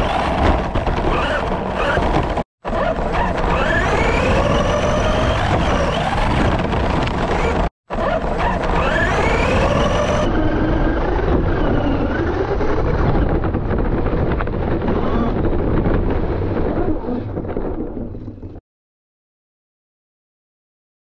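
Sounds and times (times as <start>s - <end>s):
chassis and tyres rattling: 0.0s - 18.6s
toy truck motor whining: 1.1s - 6.5s, 7.3s - 13.0s.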